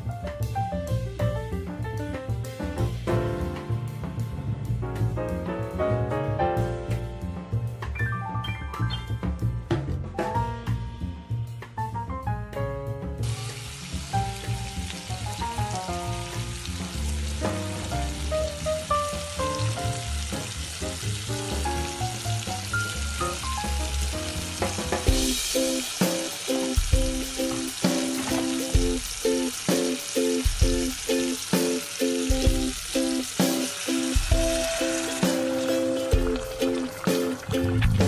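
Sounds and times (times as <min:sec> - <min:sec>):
background music with beat: 0:00.0 - 0:13.2, 0:21.3 - 0:38.0
ribs sizzling in oil: 0:13.2 - 0:38.0.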